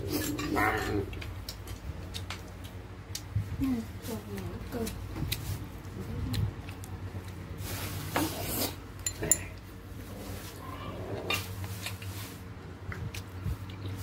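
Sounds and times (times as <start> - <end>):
glasses and dishes clinking: 9.0 - 9.5.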